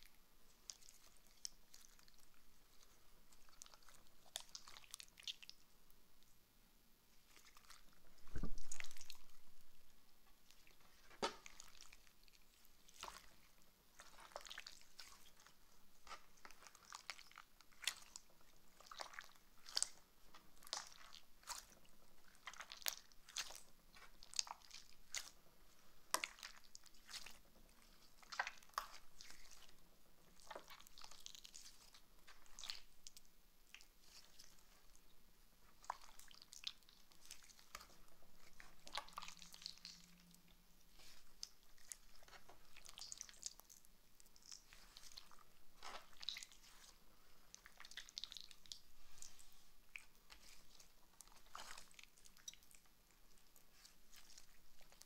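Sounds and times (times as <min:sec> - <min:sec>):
slime squished by hand: 0:10.4 - 0:29.8, 0:40.9 - 0:55.0.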